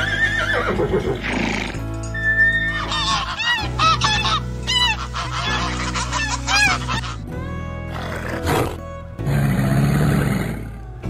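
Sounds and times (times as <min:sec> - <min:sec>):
horse whinnying: 0:00.0 - 0:03.7
background music: 0:00.0 - 0:11.0
geese honking: 0:02.2 - 0:07.3.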